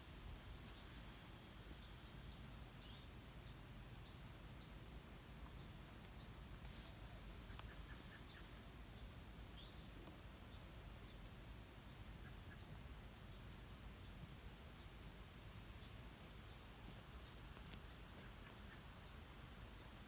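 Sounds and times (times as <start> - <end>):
high insect drone: 0.0 - 20.0
faint bird chirps: 5.4 - 15.0, 15.7 - 20.0.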